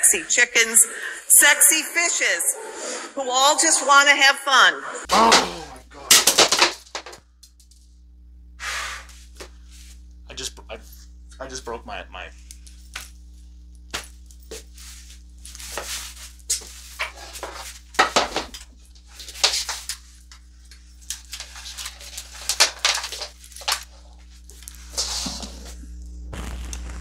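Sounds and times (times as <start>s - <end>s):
sharp knocks and clatters: 6.1s - 7.2s, 17.0s - 18.7s
objects rustling and scraping: 12.6s - 25.9s.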